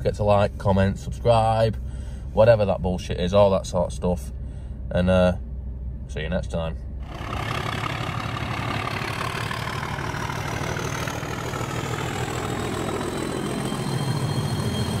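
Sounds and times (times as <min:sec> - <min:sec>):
car engine accelerating hard: 0:07.0 - 0:15.0
thin whine rising in pitch: 0:07.0 - 0:15.0.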